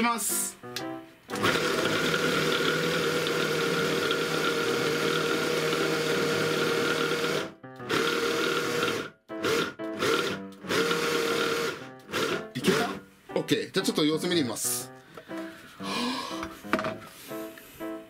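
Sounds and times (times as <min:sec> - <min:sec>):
hand blender motor whine: 0:01.4 - 0:13.0.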